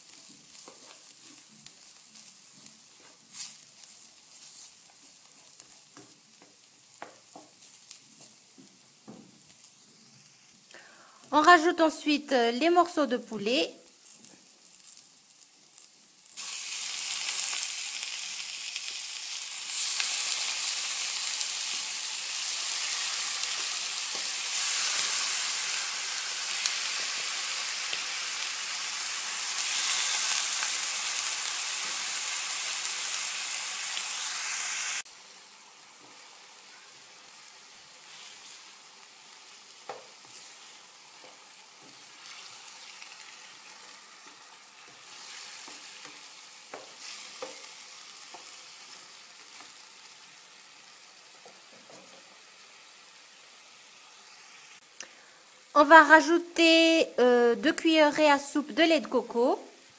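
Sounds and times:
chicken sizzling in oil: 0.0 - 59.9.

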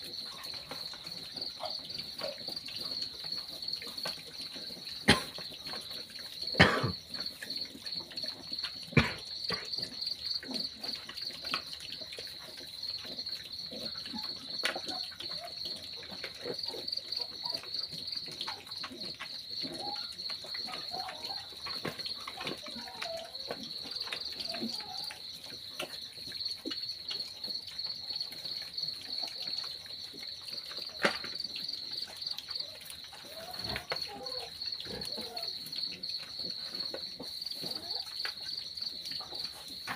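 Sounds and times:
crickets chirping: 0.0 - 39.9
piglets snuffling and chewing: 0.0 - 39.9.

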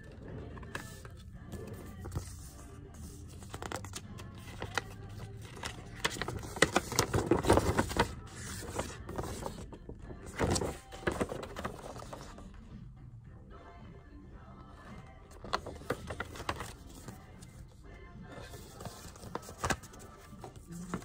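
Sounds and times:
background music: 0.0 - 21.0
paper crackling and rustling: 0.6 - 12.4, 15.3 - 17.4, 18.3 - 21.0.

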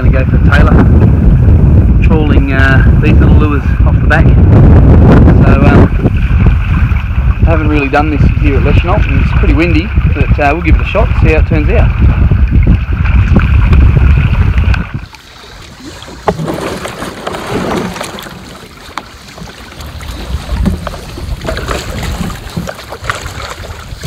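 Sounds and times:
wind buffeting microphone: 0.0 - 24.0
paddle splashing water: 5.9 - 24.0.

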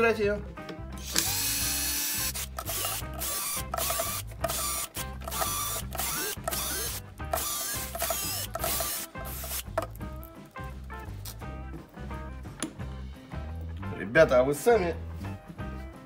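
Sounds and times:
cordless drill running in bursts: 1.0 - 9.6.

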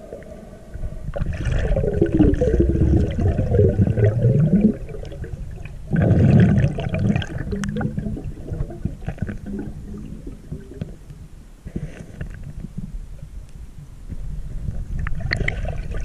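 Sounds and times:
rushing whoosh of water: 0.0 - 9.1
underwater bubbling: 0.0 - 11.4, 14.6 - 16.0
water sloshing and gurgling: 0.0 - 12.9, 14.6 - 16.0.

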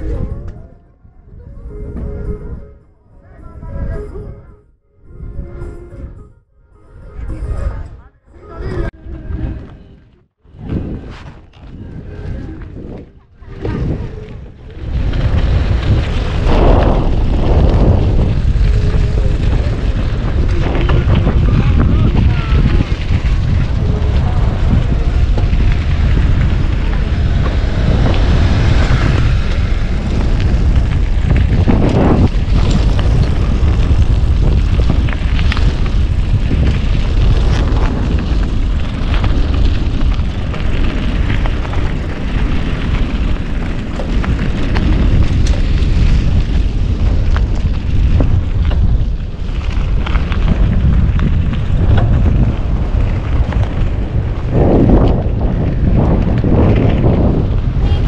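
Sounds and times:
wind buffeting microphone: 0.0 - 58.0.

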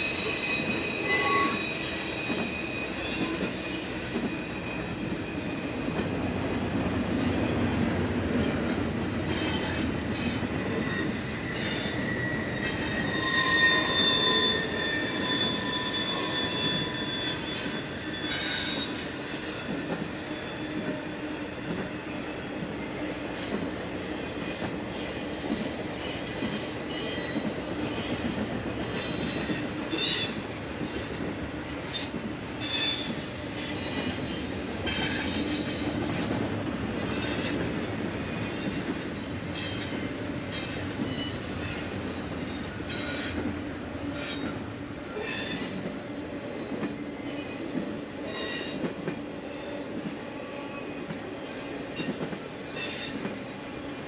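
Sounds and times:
freight train rumbling past: 0.0 - 54.0
wheels squealing: 9.3 - 20.3.

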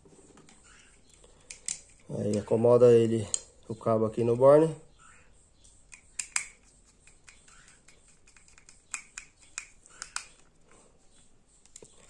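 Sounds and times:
screwdriver clicking and scraping: 0.4 - 2.5, 5.9 - 10.5.

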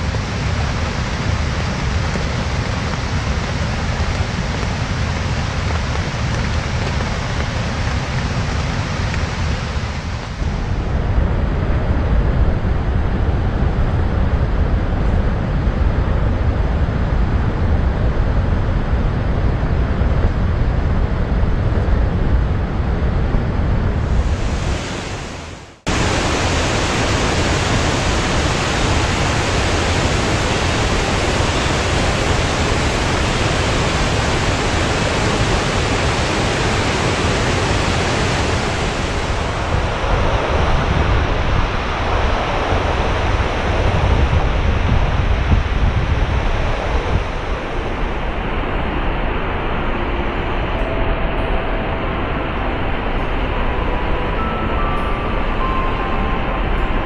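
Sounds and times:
stream water rushing: 24.0 - 44.5.

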